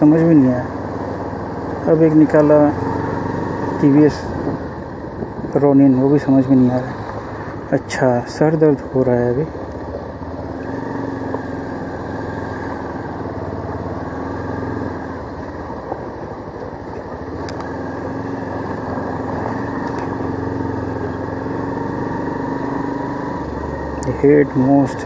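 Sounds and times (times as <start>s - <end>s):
motorcycle engine running: 0.0s - 25.0s
road and wind noise: 0.0s - 25.0s.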